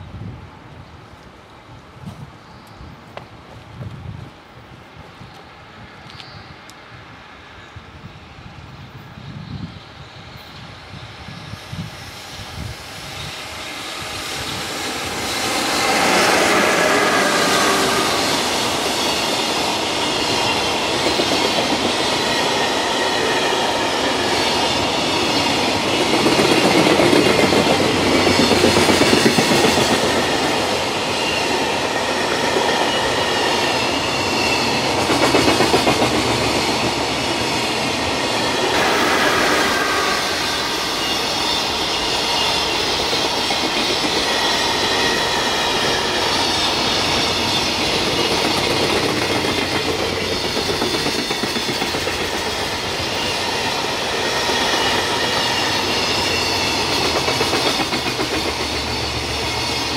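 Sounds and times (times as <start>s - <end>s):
train wheels clattering on rails: 12.6s - 59.9s.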